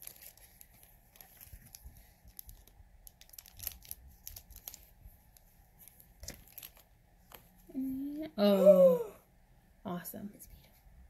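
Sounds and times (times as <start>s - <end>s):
plastic wrapper crinkling and tearing: 0.0s - 6.9s.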